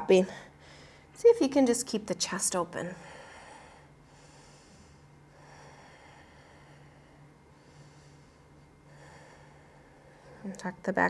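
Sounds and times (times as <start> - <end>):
woman breathing softly: 0.2 - 1.2, 2.9 - 10.5.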